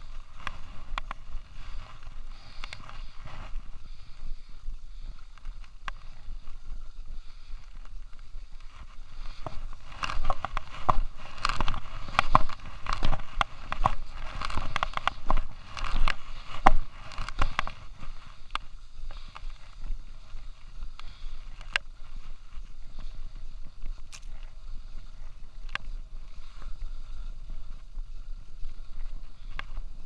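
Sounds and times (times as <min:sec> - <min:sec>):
skis scraping over snow: 0:00.0 - 0:30.0
wind rumble on microphone: 0:00.0 - 0:30.0.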